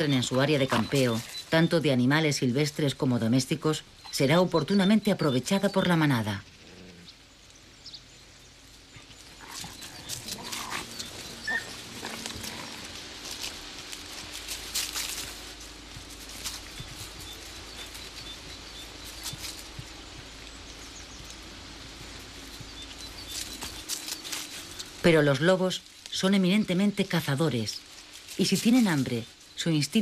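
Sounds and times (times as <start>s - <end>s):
wolves growling and snarling: 8.9s - 13.6s.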